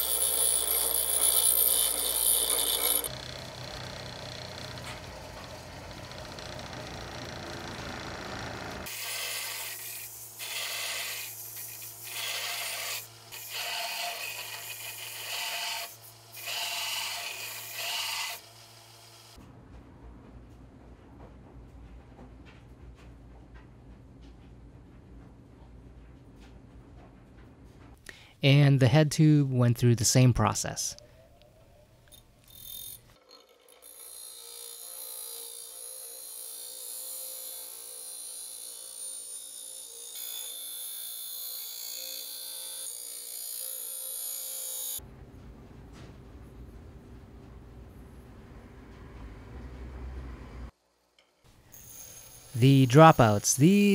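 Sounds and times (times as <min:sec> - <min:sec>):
belt sander motor hum: 0:00.0 - 0:09.0
steel tube grinding on wheel: 0:00.0 - 0:09.0
metal grinding on sanding belt: 0:00.0 - 0:18.4, 0:51.7 - 0:53.9.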